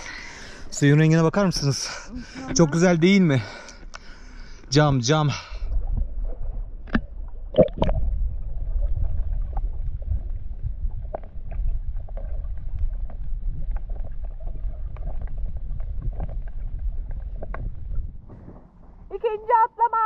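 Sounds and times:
muffled underwater rumble: 4.1s - 19.2s
faint clicks and crackles: 5.8s - 18.0s.

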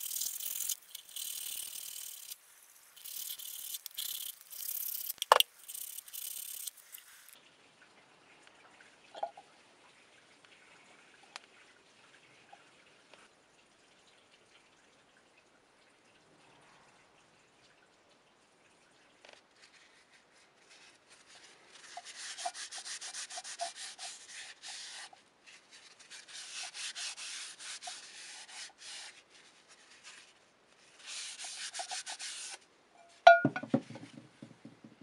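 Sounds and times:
sandpaper rubbing on metal: 0.0s - 7.4s
metallic knock with ring: 33.3s - 34.0s.

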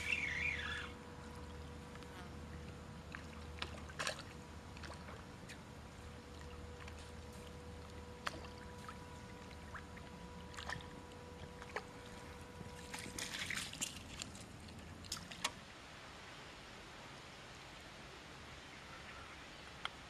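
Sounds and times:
water splashing: 0.0s - 15.7s
faint steady tone: 0.0s - 20.0s
waves lapping at riverbank: 0.0s - 20.0s.

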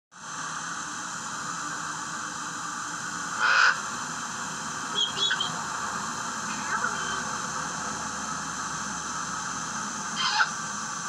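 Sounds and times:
parrot squawk: 3.4s - 3.8s, 5.0s - 5.6s, 10.2s - 10.6s
high bird chirps: 5.0s - 5.6s.

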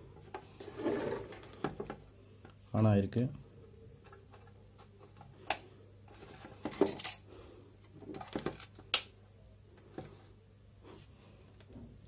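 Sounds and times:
clicks and knocks of handling: 7.8s - 9.1s.

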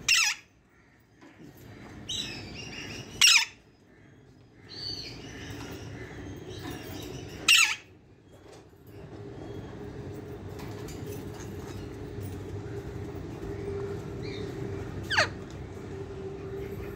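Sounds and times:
parakeet loud calls: 0.0s - 0.5s, 2.1s - 3.6s, 7.5s - 7.9s, 15.0s - 15.4s.

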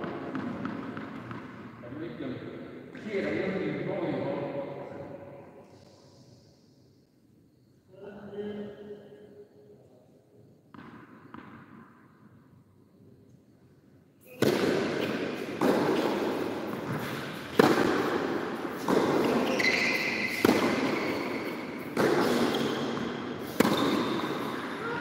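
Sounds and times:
tennis ball bouncing: 0.0s - 1.6s, 10.7s - 11.9s, 14.4s - 24.8s
tennis rackets hitting ball: 0.0s - 1.7s, 14.2s - 25.0s.

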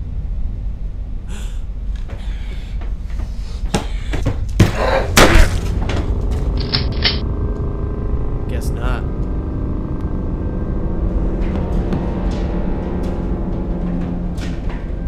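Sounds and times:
low rumble: 4.7s - 15.0s.

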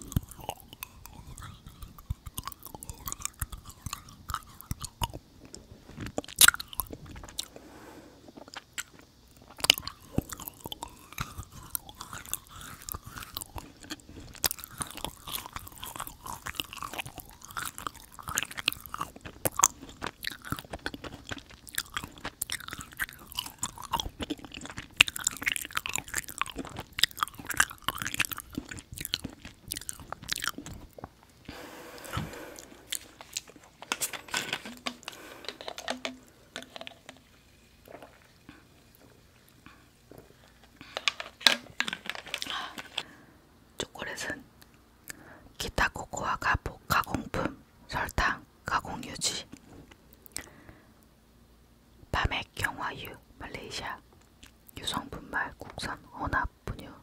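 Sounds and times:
wet mouth clicks: 0.0s - 7.5s, 8.3s - 31.1s, 34.7s - 37.3s, 50.2s - 50.5s
close chewing of sticky sweets: 0.0s - 51.1s, 52.1s - 57.0s.

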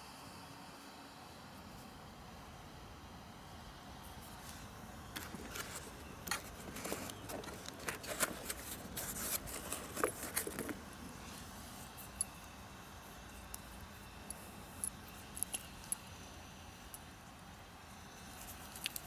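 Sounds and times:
clicks taps and rustles of handling: 5.1s - 10.8s.

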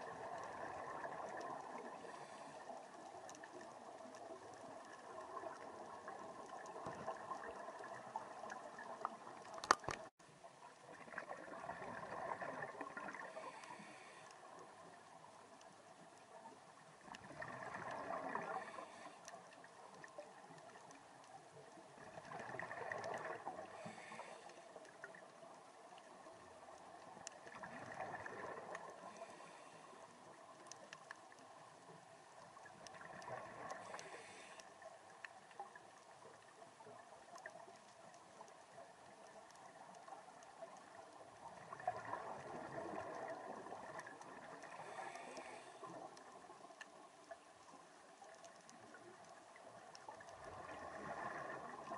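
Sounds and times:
underwater bubbling and gurgling: 0.0s - 51.9s
diver breathing through regulator: 13.2s - 14.4s, 23.8s - 24.8s, 29.1s - 30.1s, 33.8s - 34.7s, 44.6s - 46.0s.

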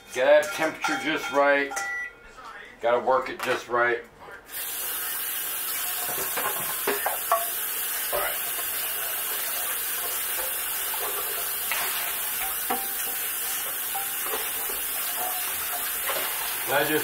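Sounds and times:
wok sizzling: 4.5s - 17.0s
metal clinking and scraping on wok: 8.6s - 16.7s.

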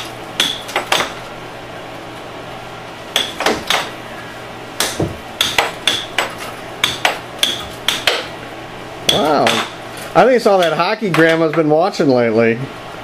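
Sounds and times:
air hockey puck clacking: 4.8s - 8.3s, 10.5s - 11.6s.

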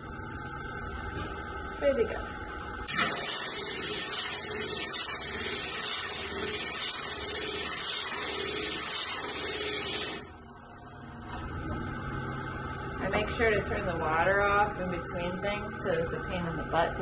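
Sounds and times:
hiss of wet glass grinding: 2.9s - 10.2s.

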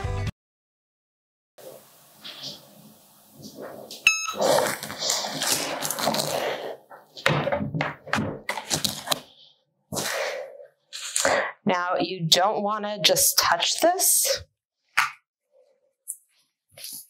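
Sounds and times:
short electronic beep: 4.0s - 4.4s
knocks and thuds: 7.2s - 8.5s.

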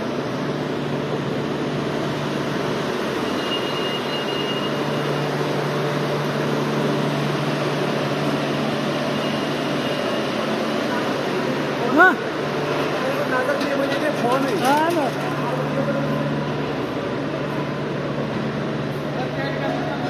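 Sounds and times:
refrigeration fans whirring: 0.0s - 20.0s.

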